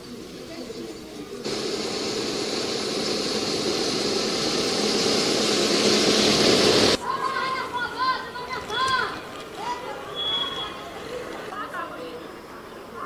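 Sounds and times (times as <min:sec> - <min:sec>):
truck engine running: 0:01.4 - 0:07.0.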